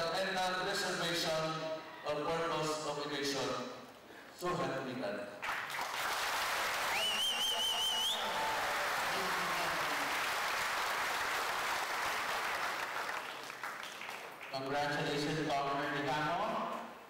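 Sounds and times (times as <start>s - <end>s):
audience applauding: 5.4s - 14.6s
warbling whistle: 6.9s - 8.4s.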